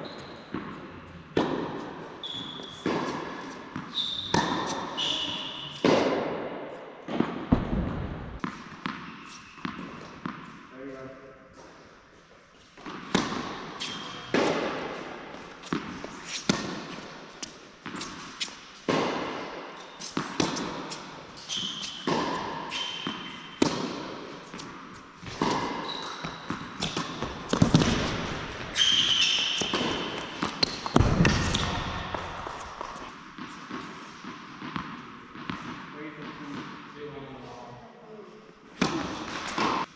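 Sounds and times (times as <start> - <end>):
sneakers squeaking on court: 0.0 - 6.0, 8.3 - 10.4, 12.8 - 17.0, 19.8 - 34.0
tennis ball bouncing: 0.1 - 6.4, 7.1 - 10.6, 12.8 - 35.8, 38.8 - 39.9
racket striking tennis ball: 0.4 - 10.6, 12.8 - 36.8, 38.8 - 39.9.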